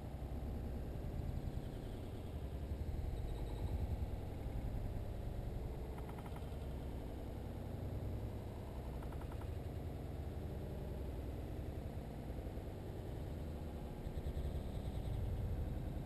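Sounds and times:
low murky outdoor rumble: 0.0s - 16.0s
faint clicking: 9.0s - 9.6s.

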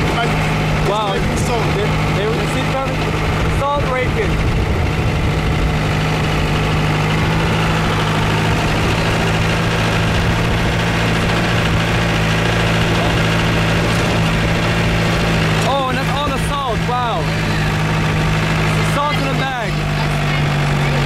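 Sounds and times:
truck engine droning: 0.0s - 21.0s
wind and road noise: 0.0s - 21.0s.

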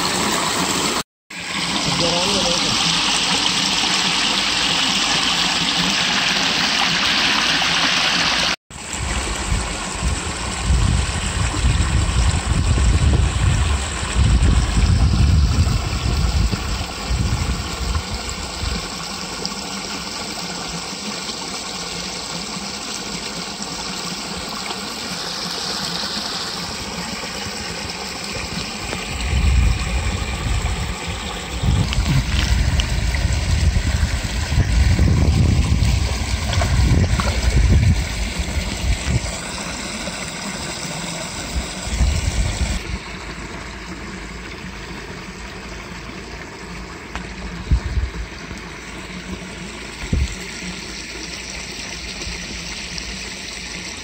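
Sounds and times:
water pouring over a weir: 0.0s - 54.0s.

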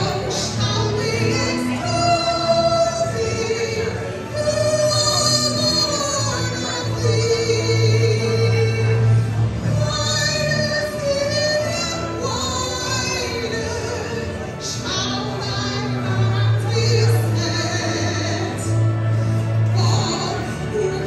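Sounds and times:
woman singing into a microphone: 0.0s - 21.0s.

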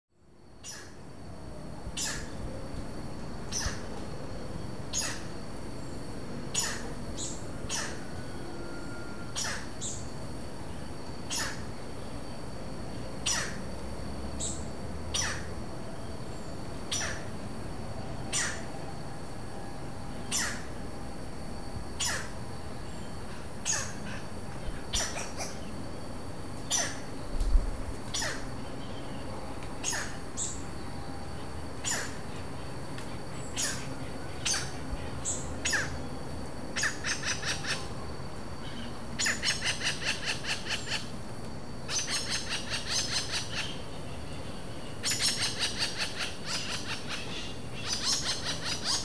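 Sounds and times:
woodpeckers calling: 15.1s - 15.5s, 24.9s - 25.7s, 41.9s - 43.8s, 45.0s - 49.0s.

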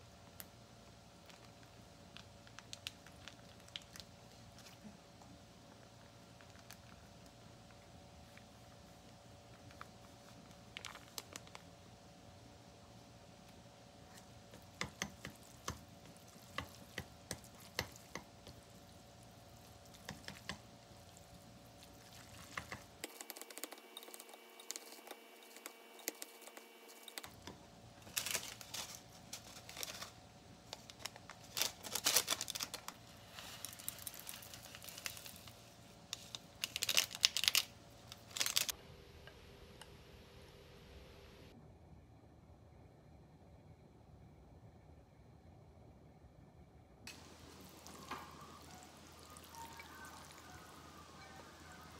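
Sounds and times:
noodles squelching: 14.6s - 27.3s.

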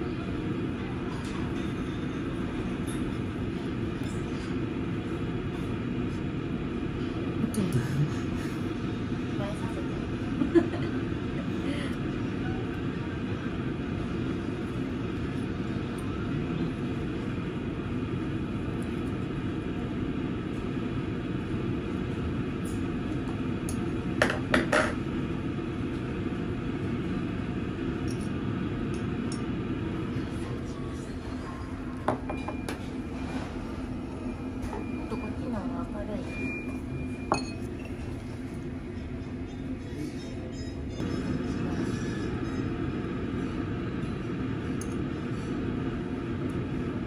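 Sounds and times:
indistinct restaurant voices: 0.0s - 47.0s
tableware clinking: 37.3s - 38.0s.

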